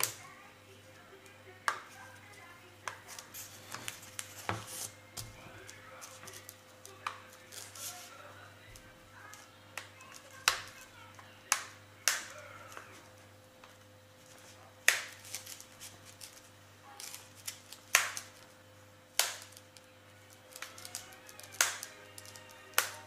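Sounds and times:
plastic clips snapping shut: 20.5 - 23.0.

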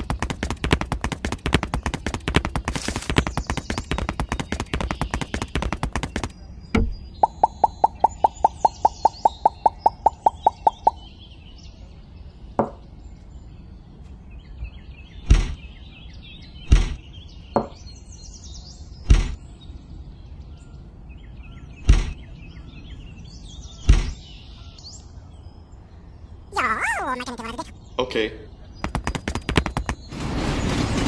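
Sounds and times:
faint bird chirps: 2.7 - 19.8.

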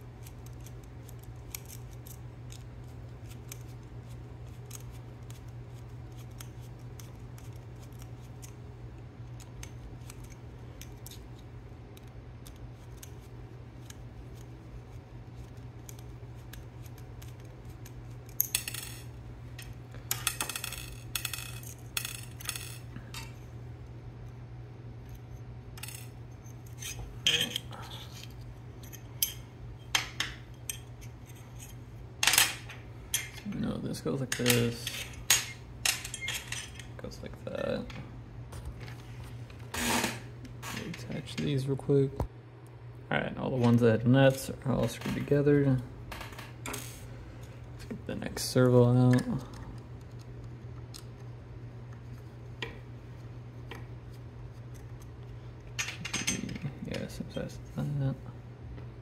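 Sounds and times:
steady low hum: 0.0 - 59.0
small metal parts clattering: 18.3 - 23.4.

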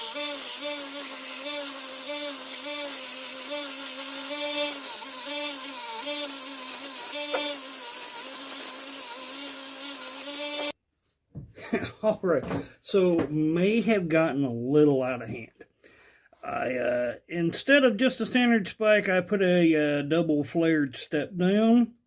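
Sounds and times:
belt grinder motor humming: 0.0 - 10.8.

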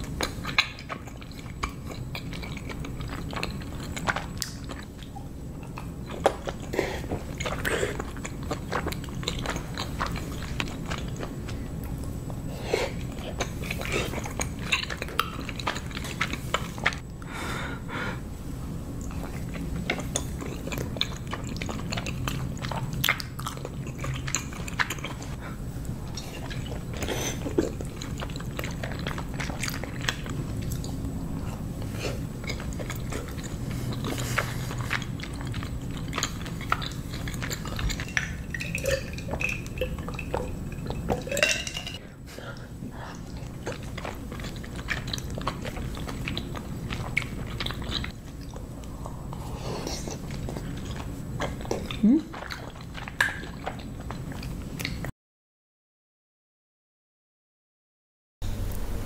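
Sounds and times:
chewing and biting dumplings: 0.0 - 17.0, 18.9 - 41.4, 42.6 - 55.1
mouth clicks and smacks: 32.1 - 41.5, 43.1 - 55.1.

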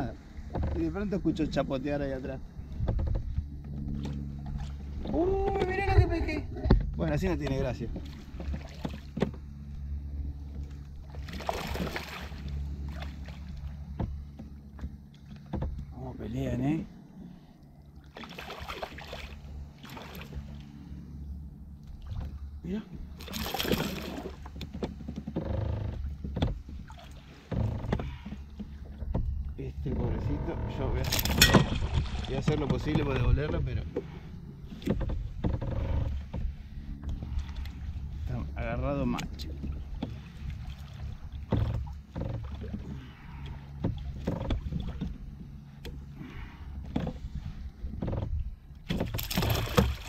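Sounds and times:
wind rumble on microphone: 0.0 - 17.6, 18.6 - 50.0
fish splashing in water: 11.1 - 13.7, 18.0 - 20.5, 23.2 - 24.5, 48.9 - 50.0.

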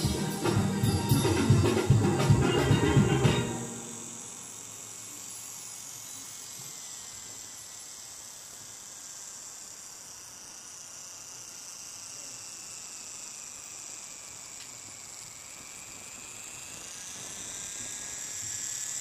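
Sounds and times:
electric motor whine: 0.0 - 19.0
high-pitched insect drone: 0.0 - 19.0.

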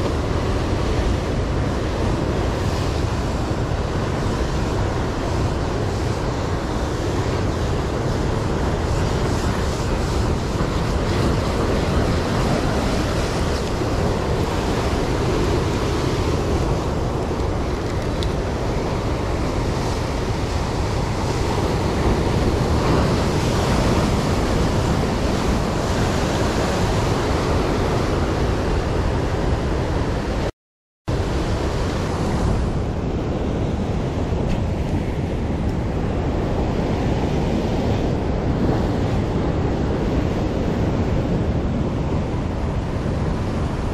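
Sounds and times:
surf breaking over rocks: 0.0 - 28.5
wind buffeting microphone: 0.0 - 30.5, 31.1 - 43.9.

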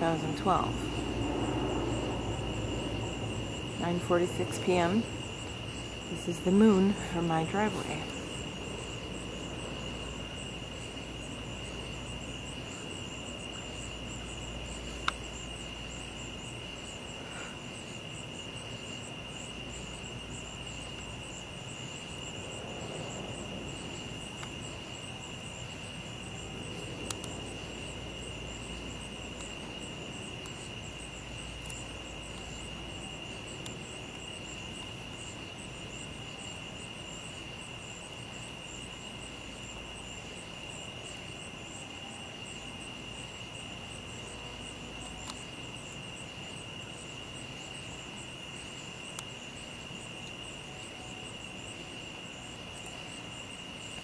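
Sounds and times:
insects trilling: 0.0 - 54.0
pulsing insect chirping: 0.0 - 54.0.

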